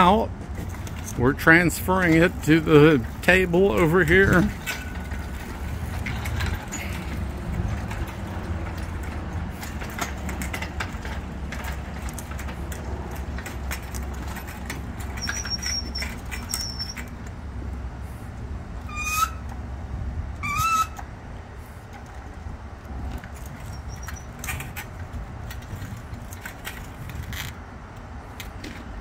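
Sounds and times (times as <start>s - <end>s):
casters rumbling on asphalt: 0.0s - 29.0s
chain clinking: 3.8s - 17.2s
short squeaks: 14.4s - 17.2s, 18.8s - 19.6s, 20.4s - 21.1s, 23.4s - 24.9s.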